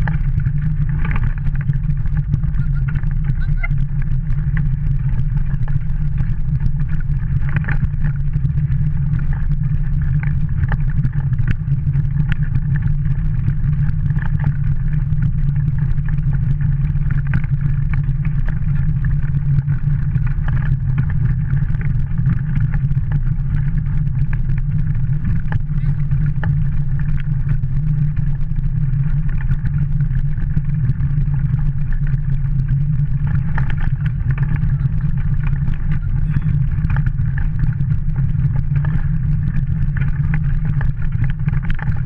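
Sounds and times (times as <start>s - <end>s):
kart clicking and rattling: 0.0s - 8.4s, 33.0s - 42.0s
kart wheels rumbling on dirt: 0.0s - 42.0s.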